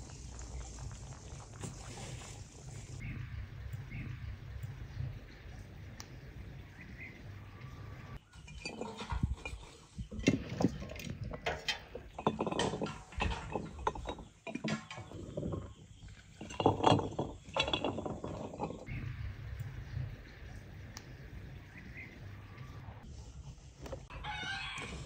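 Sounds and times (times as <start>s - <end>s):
garlic clinking on glass jars: 8.3s - 18.9s.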